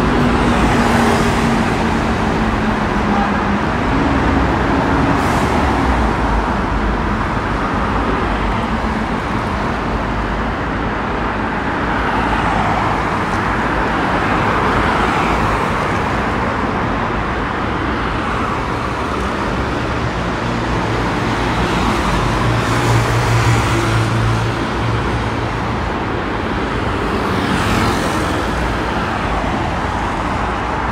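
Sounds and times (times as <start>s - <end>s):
cars and bus passing: 0.0s - 30.9s.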